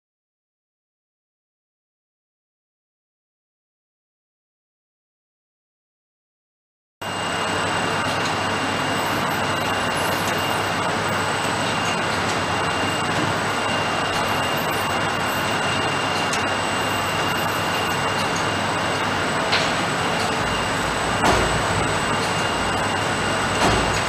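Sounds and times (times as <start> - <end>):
machinery hiss and hum: 7.0 - 24.0
thin high whines: 7.0 - 24.0.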